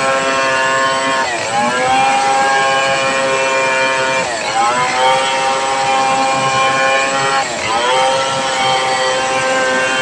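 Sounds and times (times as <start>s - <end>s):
chainsaw cutting log: 0.0s - 10.0s.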